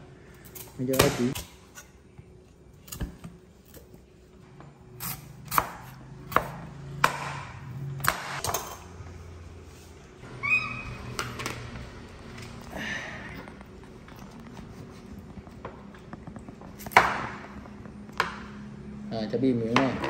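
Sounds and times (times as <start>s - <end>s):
high-pitched squeak: 10.2s - 11.2s.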